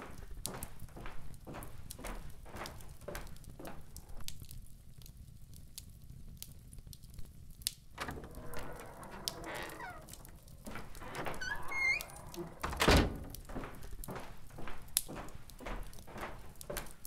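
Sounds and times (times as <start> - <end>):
footsteps on hard floor: 0.5 - 3.8, 13.1 - 17.0
wooden door creaking open: 8.0 - 13.8.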